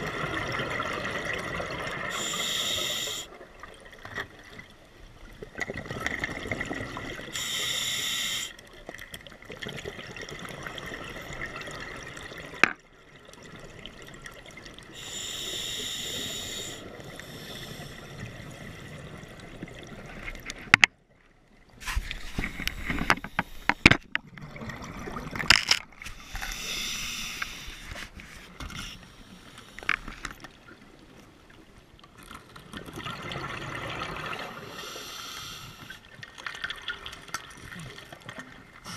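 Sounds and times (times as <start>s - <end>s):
hissing regulator inhalations: 2.1s - 3.3s, 7.4s - 8.6s, 15.0s - 18.1s, 26.1s - 28.1s, 34.7s - 36.0s
exhaled bubbles rumbling: 24.2s - 25.5s.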